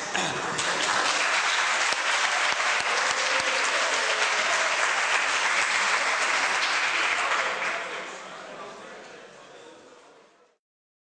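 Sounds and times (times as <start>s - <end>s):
audience applauding: 0.4s - 8.2s.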